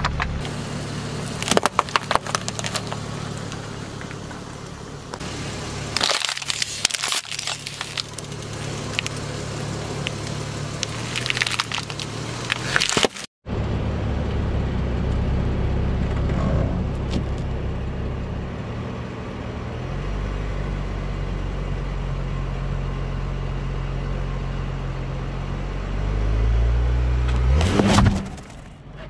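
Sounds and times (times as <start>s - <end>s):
low car engine hum: 0.0s - 29.0s
plastic bottles crushed by car tyre: 1.4s - 3.0s, 6.0s - 9.2s, 10.0s - 13.3s.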